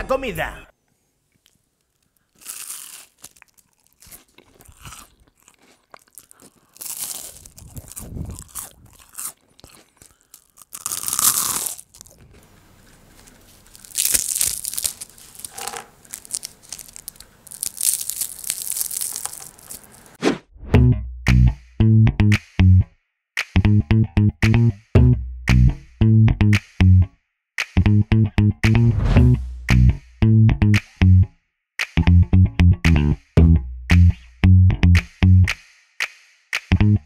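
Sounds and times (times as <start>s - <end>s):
fried potato crunching: 1.4s - 20.2s.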